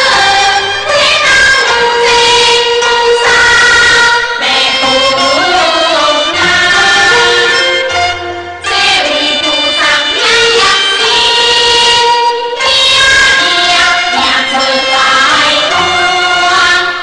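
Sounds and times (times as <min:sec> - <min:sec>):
opera singing with instruments: 0:00.0 - 0:07.8.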